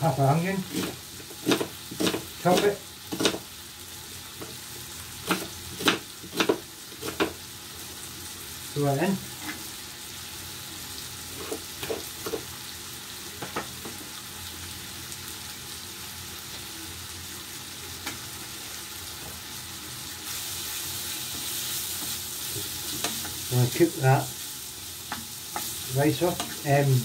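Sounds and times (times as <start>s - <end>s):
food sizzling in a frying pan: 0.0s - 27.0s
wooden spoon stirring food: 21.2s - 27.0s.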